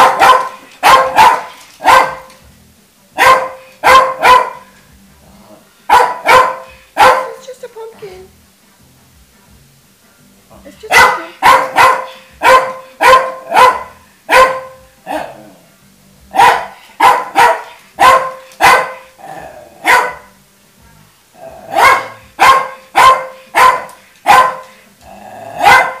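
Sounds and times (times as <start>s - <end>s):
dog barking: 0.0s - 2.4s, 3.2s - 4.7s, 5.9s - 7.4s, 10.9s - 15.4s, 16.3s - 19.1s, 19.8s - 20.4s, 21.7s - 24.8s, 25.6s - 26.0s.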